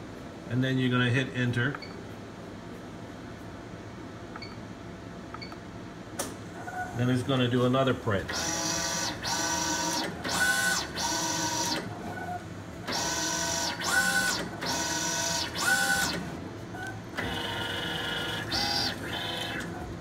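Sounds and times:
printer carriage motor whine: 8.1 - 20.0.

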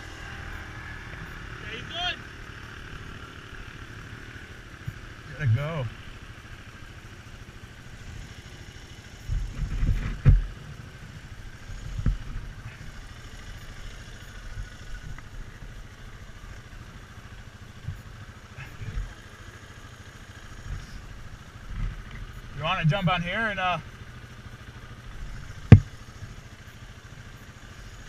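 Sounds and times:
atv engine idling: 0.0 - 28.0
thumps and knocks: 25.7 - 25.9.

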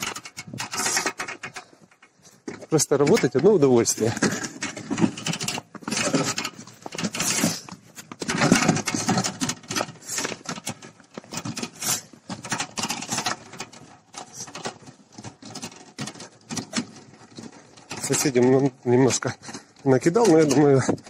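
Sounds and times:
plough blade scraping snow: 5.8 - 10.7, 11.5 - 13.6.

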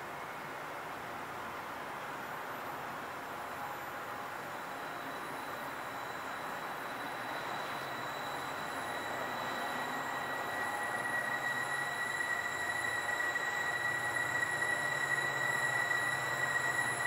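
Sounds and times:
high steady squeal: 2.3 - 17.0
train rumble: 4.2 - 17.0.

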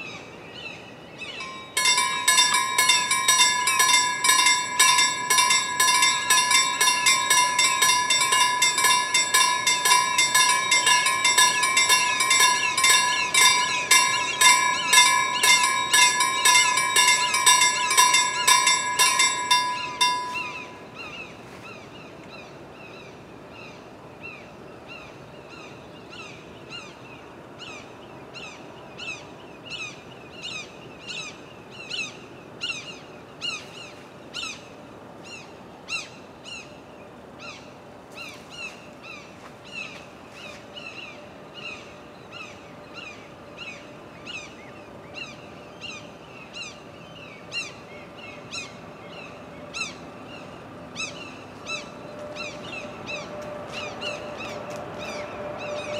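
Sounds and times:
level crossing warning bell: 1.4 - 21.2, 51.5 - 55.9.

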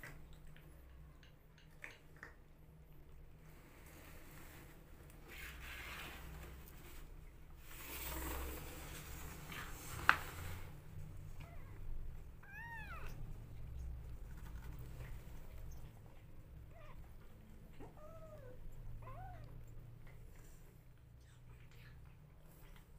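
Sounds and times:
rustling: 3.5 - 11.8
kitten meowing: 12.4 - 13.2.

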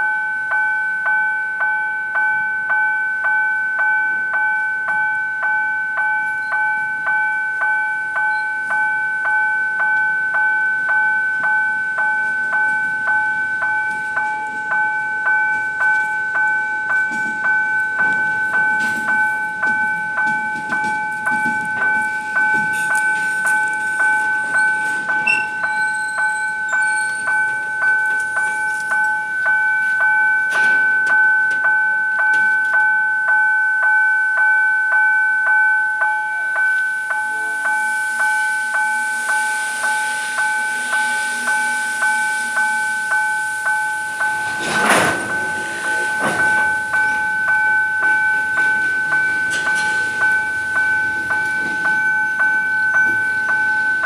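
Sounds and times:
level crossing warning bell: 0.0 - 54.0
train wagons rumbling over rails: 4.0 - 33.0, 36.4 - 54.0
wheels clacking over rail joints: 10.8 - 32.9, 40.2 - 54.0.

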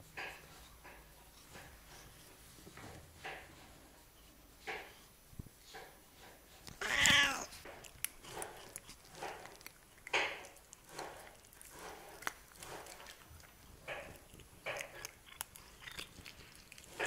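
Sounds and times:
cats licking and eating: 0.1 - 17.0
cat meowing: 6.8 - 7.5.

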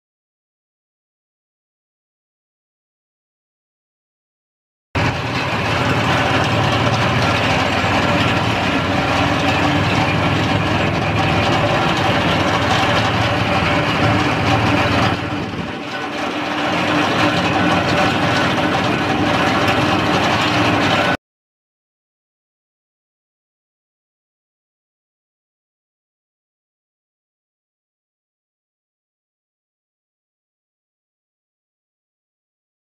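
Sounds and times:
roller crimper rattling: 5.0 - 21.2
tractor engine under load: 5.0 - 21.2.

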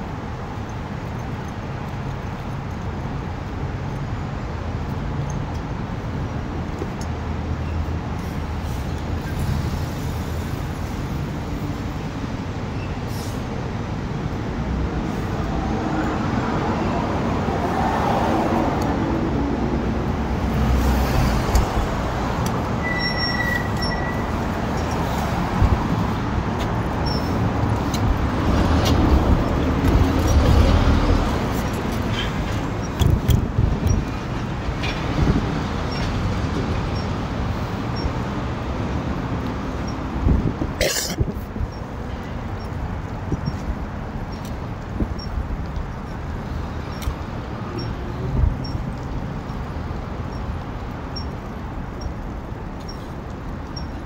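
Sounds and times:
road traffic rumble: 0.0 - 54.0
high squeal: 22.8 - 24.4.

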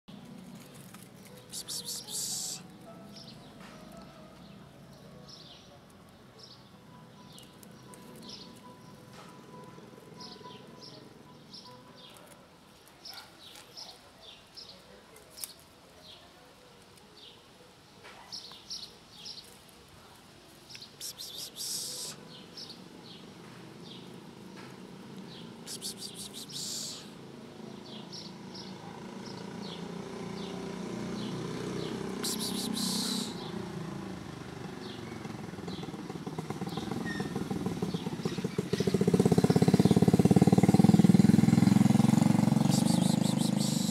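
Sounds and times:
vehicle engine approaching: 0.1 - 5.2, 22.8 - 43.9
small birds chirping: 0.1 - 17.6, 18.2 - 43.9.

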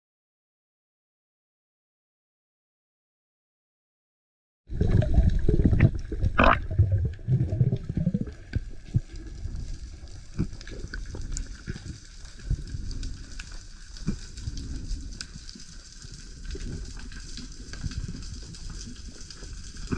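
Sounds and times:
underwater rush of water: 4.7 - 19.9.

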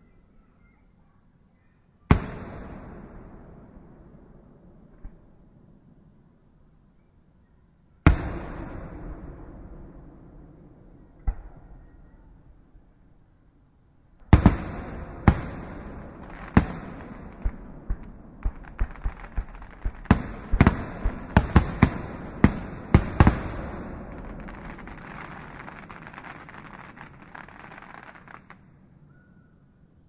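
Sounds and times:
fireworks bangs: 2.1 - 4.0, 8.1 - 12.3, 14.2 - 28.6
fireworks crackle: 14.3 - 28.6.

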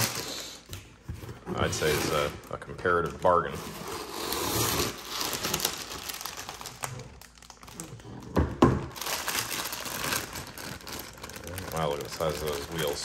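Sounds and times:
plastic bags crinkling: 0.0 - 0.7, 4.5 - 13.0.

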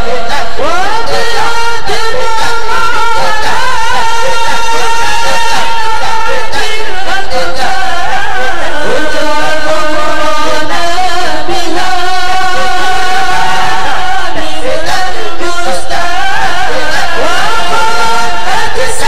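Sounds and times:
person chanting a prayer: 0.0 - 19.0.

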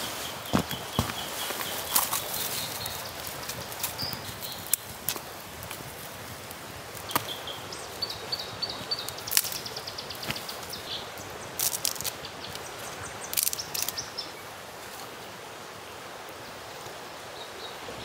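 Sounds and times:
kindling crackling: 0.0 - 12.7
twigs snapping and rustling: 0.3 - 7.5, 9.0 - 10.8, 11.6 - 12.7, 13.3 - 14.1.

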